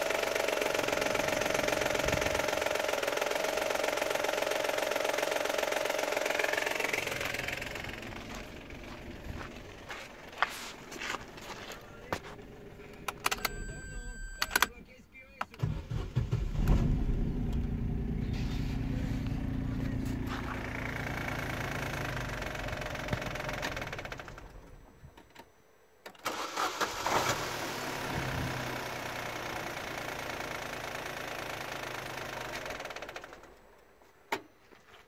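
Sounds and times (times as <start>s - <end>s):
petrol engine idling: 0.0s - 14.7s, 15.6s - 25.1s.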